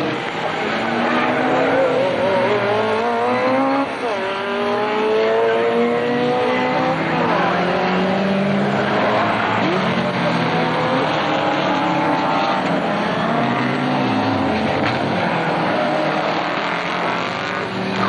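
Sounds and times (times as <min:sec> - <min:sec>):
racing car engine revving: 0:00.0 - 0:18.0.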